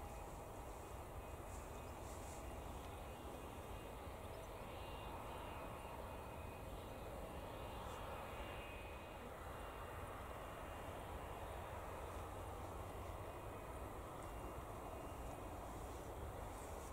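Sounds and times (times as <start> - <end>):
distant jet engines humming: 0.0 - 16.9.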